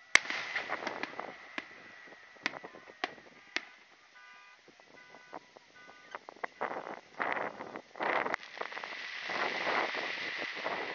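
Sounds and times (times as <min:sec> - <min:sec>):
fireworks cracking: 0:00.0 - 0:05.5, 0:06.1 - 0:10.9
faint high tone: 0:02.6 - 0:06.2
horn-like tone: 0:02.7 - 0:06.8.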